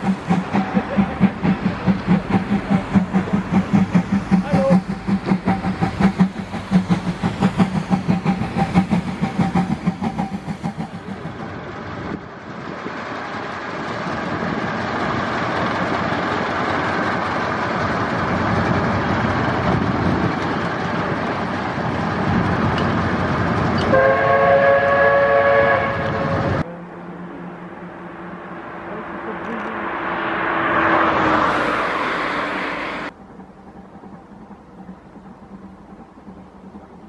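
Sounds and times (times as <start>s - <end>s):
train rhythmic beat: 0.0s - 11.6s, 18.0s - 37.0s
steam locomotive hissing steam: 0.0s - 15.4s, 28.9s - 33.2s.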